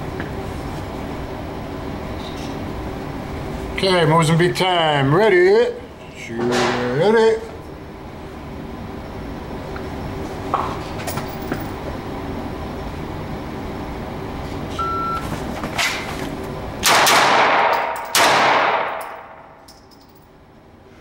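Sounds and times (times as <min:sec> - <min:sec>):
pistol shots echoing: 0:16.8 - 0:19.2.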